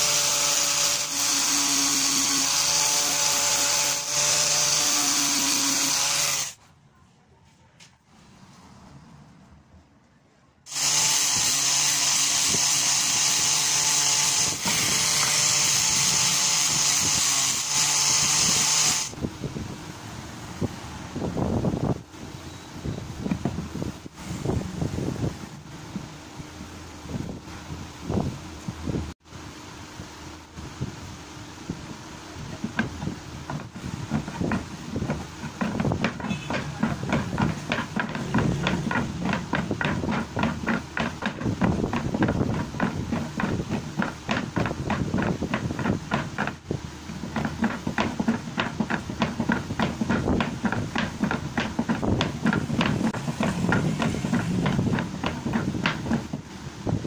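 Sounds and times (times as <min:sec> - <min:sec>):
handheld electric tool running: 0:00.0 - 0:06.6, 0:10.7 - 0:19.2, 0:33.5 - 0:46.6
knocks and ticks of wooden bat: 0:32.6 - 0:56.4.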